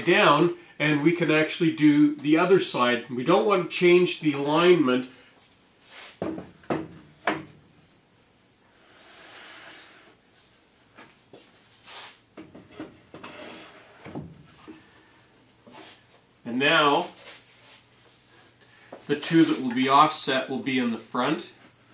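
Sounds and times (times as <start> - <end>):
wooden boards knocking: 6.2 - 7.5
wood sliding rub: 8.8 - 10.2, 11.8 - 14.1, 19.2 - 19.8.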